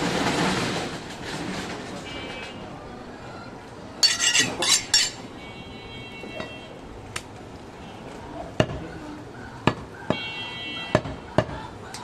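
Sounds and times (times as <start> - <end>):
cleaver blade clinking and scraping: 4.0 - 5.2.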